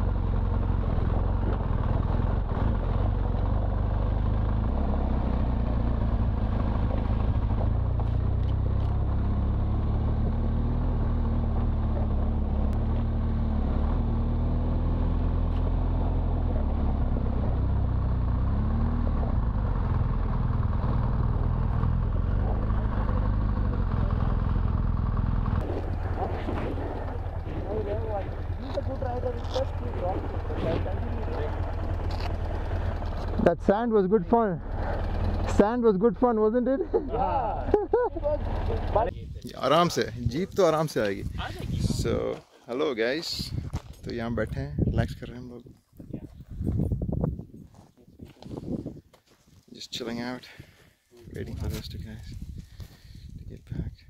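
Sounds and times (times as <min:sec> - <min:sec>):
motorcycle engine running: 0:00.0 - 0:42.3
road noise on gravel: 0:00.0 - 0:53.9.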